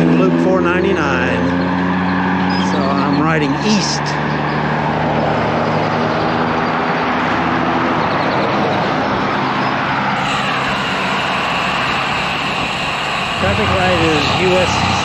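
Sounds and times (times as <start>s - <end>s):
vehicle engine hum: 0.0s - 15.0s
vehicle passing: 0.0s - 15.0s
wind and road noise: 0.0s - 15.0s.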